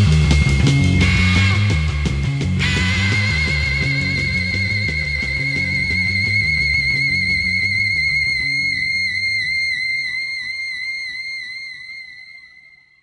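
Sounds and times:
psychedelic rock song: 0.0s - 10.2s
high held wavering note: 0.0s - 13.0s.

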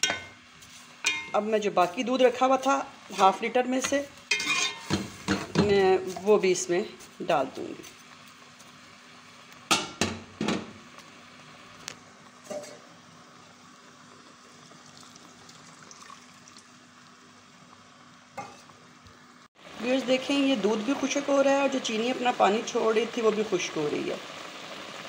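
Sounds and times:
milk bubbling and sizzling: 0.0s - 25.0s
spoon scraping metal pot: 4.3s - 5.2s.

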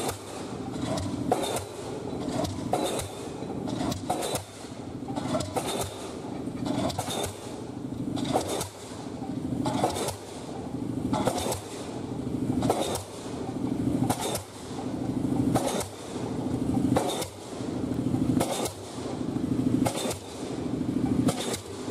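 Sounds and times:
pile driver hammer blows: 0.0s - 7.6s, 8.2s - 9.0s, 9.6s - 10.4s, 11.1s - 11.9s, 12.6s - 13.3s, 14.0s - 14.8s, 15.5s - 16.2s, 16.9s - 17.5s, 18.4s - 19.0s, 19.8s - 20.5s, 21.2s - 21.9s
engine hum: 0.0s - 21.9s.

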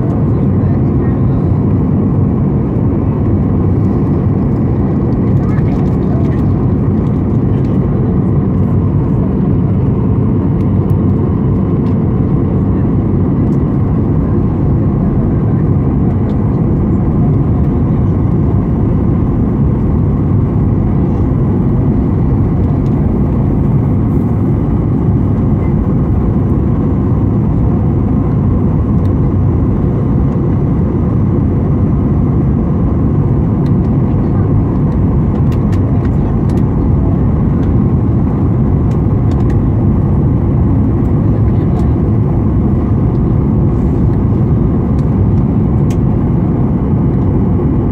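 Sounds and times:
airplane cabin engine noise: 0.0s - 47.9s.

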